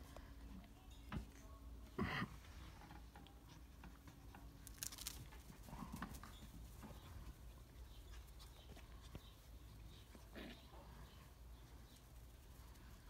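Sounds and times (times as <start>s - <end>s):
puppy rustling on grass: 3.4s - 13.0s.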